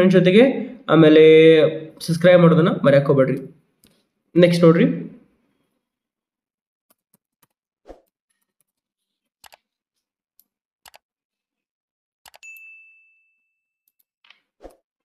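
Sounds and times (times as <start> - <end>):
bell ding: 12.4 - 13.8.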